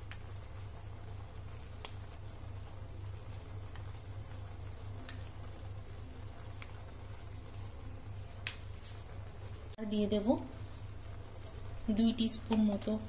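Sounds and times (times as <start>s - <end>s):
faint crackles from pot: 0.0s - 9.8s
steady low hum: 0.0s - 13.0s.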